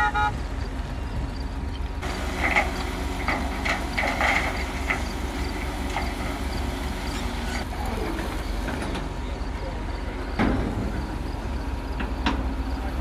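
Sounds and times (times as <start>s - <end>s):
heavy diesel machinery running: 0.0s - 13.0s
metallic clanks and knocks: 2.0s - 9.1s, 10.3s - 11.1s, 12.0s - 12.6s.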